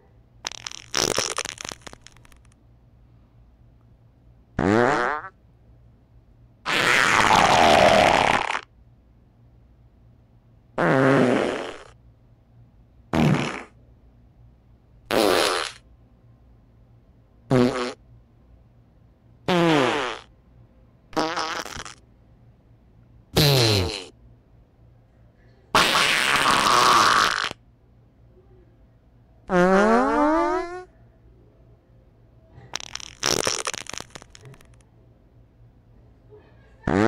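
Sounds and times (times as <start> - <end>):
farts: 0.4 - 2.6, 4.6 - 5.4, 6.7 - 8.7, 10.8 - 12.0, 13.1 - 13.8, 15.1 - 15.8, 17.5 - 18.0, 19.5 - 20.3, 21.2 - 22.0, 23.4 - 24.2, 25.8 - 27.6, 29.5 - 30.9, 32.6 - 34.8.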